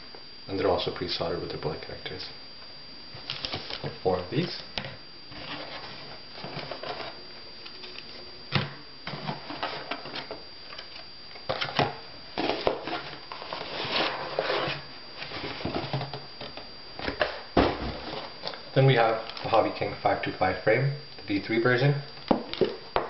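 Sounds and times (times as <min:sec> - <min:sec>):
parts set down on table: 0:15.6 - 0:18.2.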